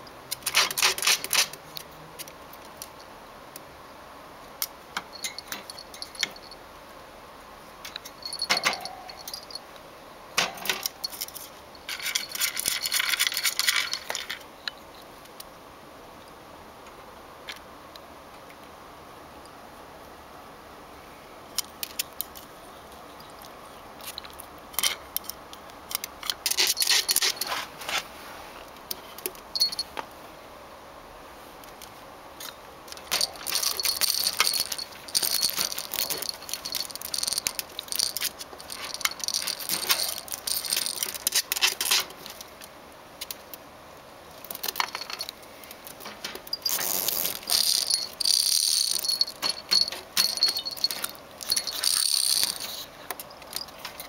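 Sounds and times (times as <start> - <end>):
cage door and toy rattling: 0.3 - 1.6, 5.1 - 6.6, 7.8 - 9.6, 32.4 - 42.5, 45.9 - 54.0.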